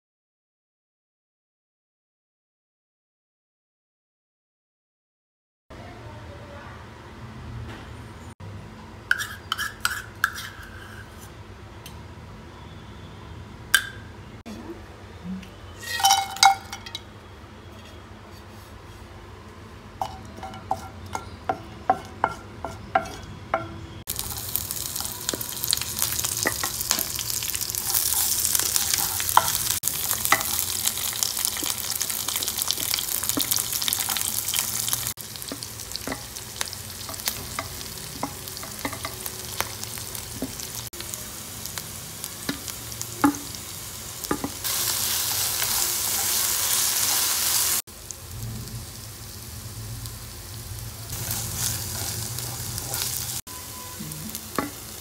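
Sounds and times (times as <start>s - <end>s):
oil sizzling: 15.8s - 17.0s, 20.0s - 55.0s
wooden spatula scraping pan: 27.7s - 30.6s, 51.2s - 53.4s.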